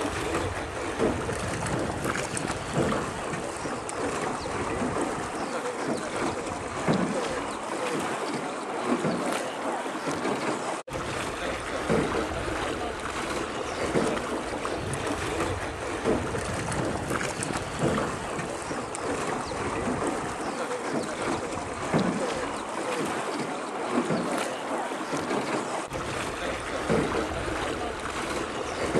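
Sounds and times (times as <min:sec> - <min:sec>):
wind on microphone: 0:00.0 - 0:05.5, 0:10.9 - 0:20.5, 0:25.9 - 0:28.9
short louder splashes: 0:00.0 - 0:28.9
water lapping around boat: 0:00.0 - 0:28.9.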